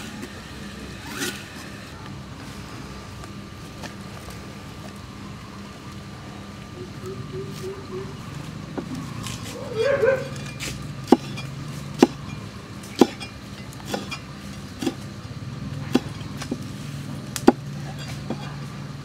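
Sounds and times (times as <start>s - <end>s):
knife chopping on wooden block: 11.1s - 12.2s, 12.9s - 13.3s, 13.9s - 14.2s, 14.8s - 15.0s, 15.9s - 16.6s.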